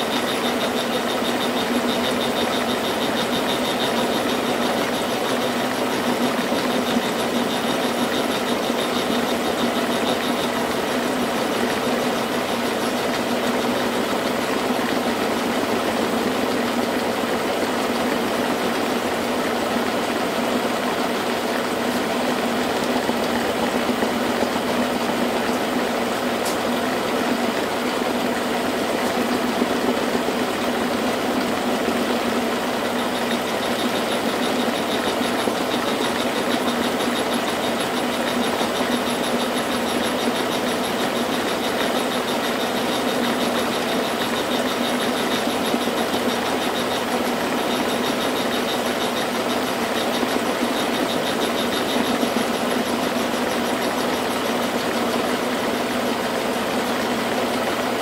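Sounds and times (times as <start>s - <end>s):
milling machine cutting metal: 0.0s - 58.0s.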